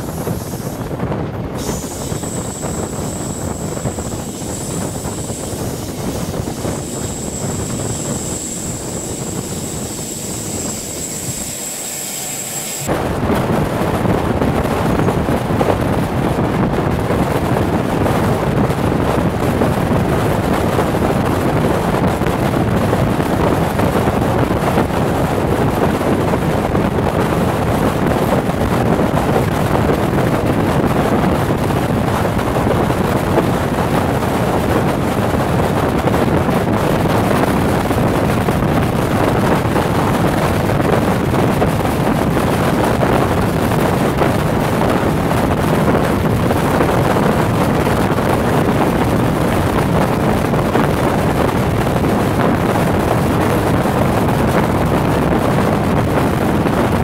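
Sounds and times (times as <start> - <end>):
thin high whine: 0.0 - 13.4
train rushing and rumbling: 0.0 - 57.0
wind buffeting microphone: 0.0 - 57.0.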